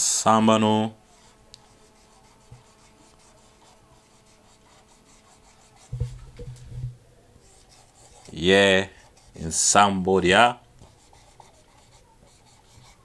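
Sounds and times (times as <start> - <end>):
marker pen writing on whiteboard: 1.0 - 6.6, 7.4 - 9.7, 10.8 - 13.0.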